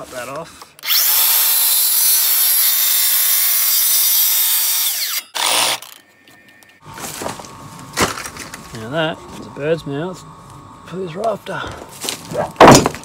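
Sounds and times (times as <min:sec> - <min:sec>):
circular saw cutting wood: 0:00.8 - 0:06.0.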